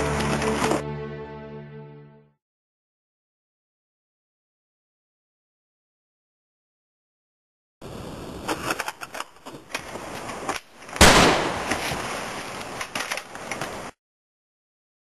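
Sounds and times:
loud gunshot: 11.0s - 11.9s.

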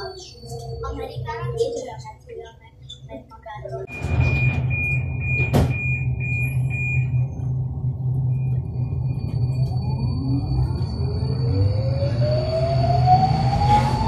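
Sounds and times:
high broken beeping: 3.8s - 11.6s
train rumble: 3.9s - 14.0s.

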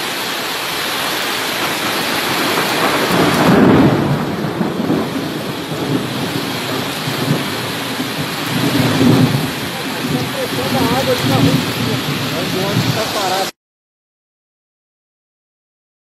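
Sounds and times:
floodwater rushing: 0.0s - 13.6s
low rumbling of water: 0.6s - 13.5s.

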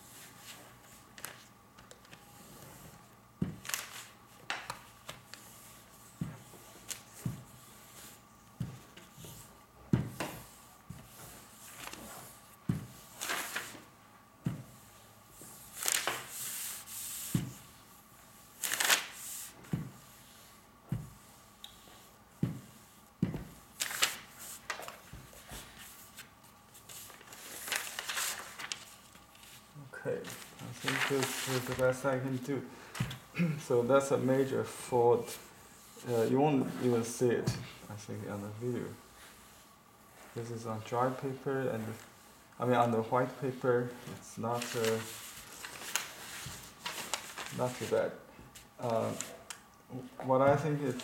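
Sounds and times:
paper rustling: 0.4s - 9.5s, 10.4s - 12.4s, 13.1s - 13.9s, 15.7s - 17.5s, 18.6s - 19.8s, 23.8s - 33.2s, 44.1s - 49.5s.

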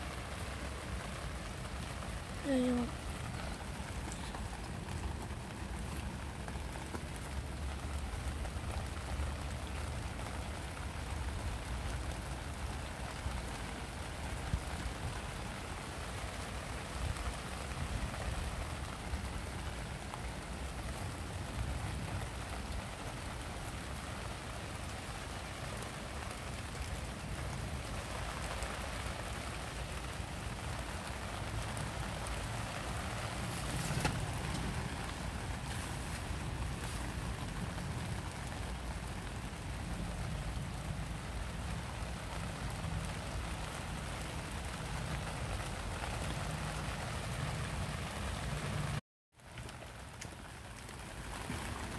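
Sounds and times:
rain hiss: 0.0s - 51.9s
footsteps in wet grass: 33.3s - 37.8s.

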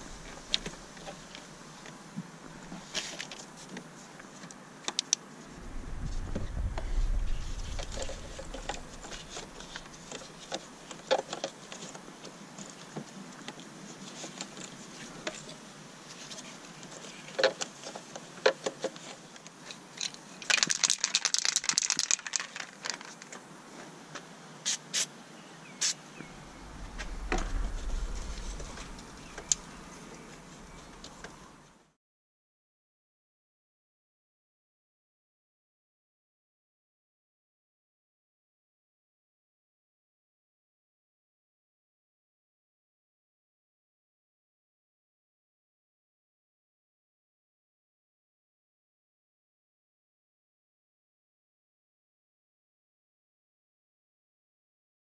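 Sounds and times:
low rumble: 5.5s - 10.1s, 26.2s - 32.0s.

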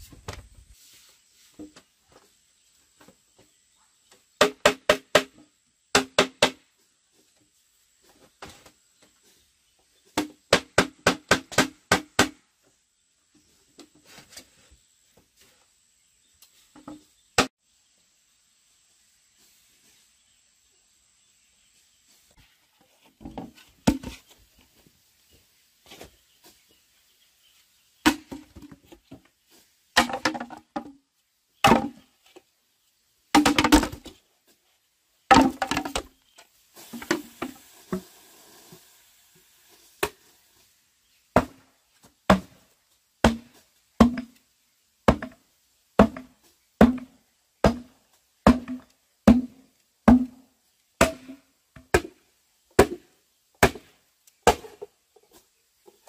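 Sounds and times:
blade chopping wood: 43.2s - 44.3s, 46.0s - 50.4s, 51.0s - 52.2s, 52.8s - 53.0s, 53.6s - 54.9s.

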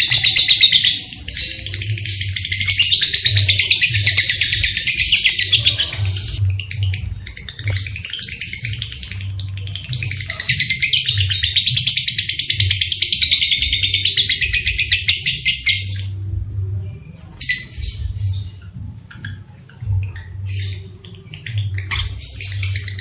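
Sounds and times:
lovebird chirping and trilling: 0.0s - 23.0s.

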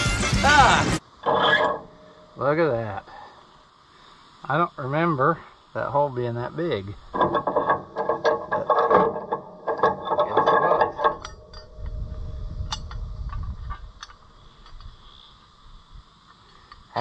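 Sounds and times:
bolt and tool rattling: 7.2s - 12.0s, 12.7s - 15.0s
low rumble: 11.2s - 14.0s.

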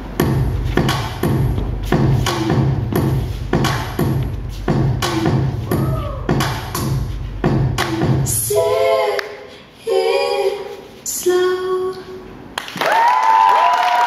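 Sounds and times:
dance music beats: 0.0s - 10.6s.

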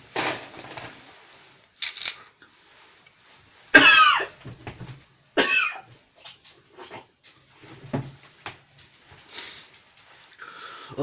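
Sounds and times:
man coughing hard: 3.8s - 4.4s, 5.4s - 5.8s.

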